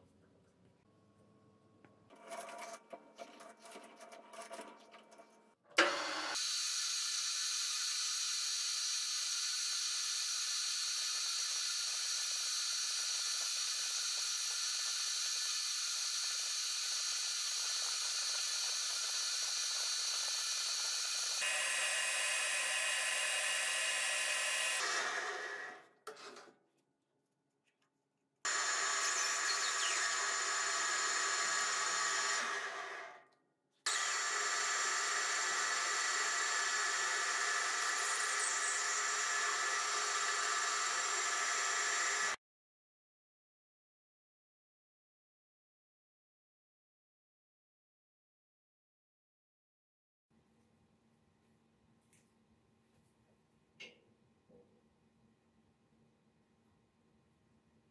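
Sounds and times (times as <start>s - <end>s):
lathe starting clunk: 5.8s - 6.4s.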